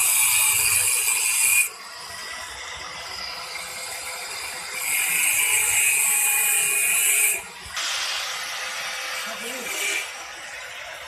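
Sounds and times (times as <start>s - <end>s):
angle grinder running: 0.0s - 11.0s
grinder screeching through metal: 0.0s - 11.0s.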